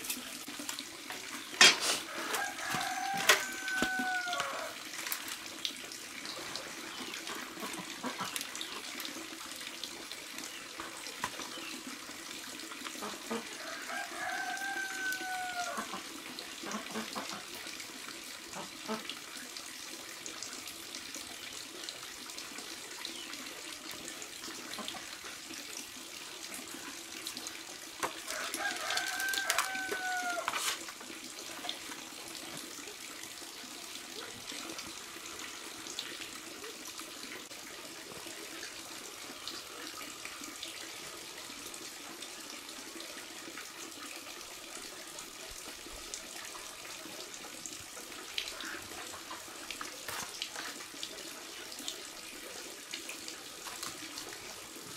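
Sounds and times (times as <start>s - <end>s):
running water: 0.0s - 54.9s
rooster crowing: 2.1s - 4.8s, 13.6s - 15.9s, 28.3s - 30.7s.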